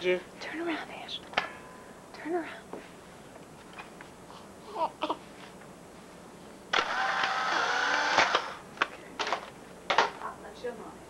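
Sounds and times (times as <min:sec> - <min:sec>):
small motor whirring: 0:06.7 - 0:08.6.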